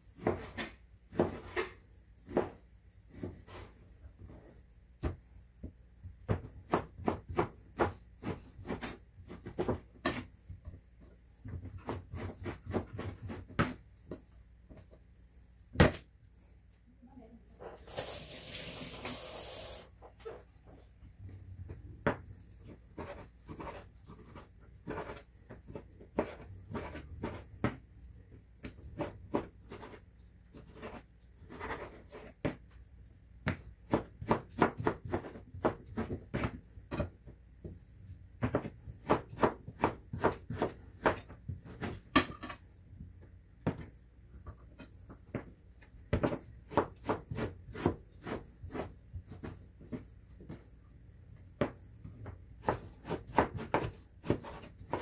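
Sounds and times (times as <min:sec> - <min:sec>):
knife chopping on wooden board: 0:00.2 - 0:03.6, 0:05.0 - 0:10.8, 0:11.4 - 0:14.8, 0:21.7 - 0:27.8, 0:28.6 - 0:32.6, 0:33.4 - 0:37.2, 0:38.4 - 0:42.4, 0:46.1 - 0:50.6, 0:51.6 - 0:55.0.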